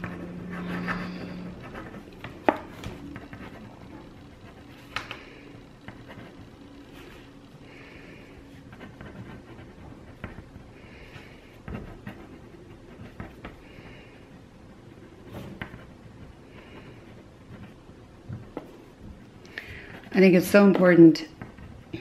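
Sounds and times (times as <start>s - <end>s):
pen scratching on paper: 0.0s - 5.0s, 5.9s - 7.3s, 8.5s - 13.9s, 15.0s - 17.8s.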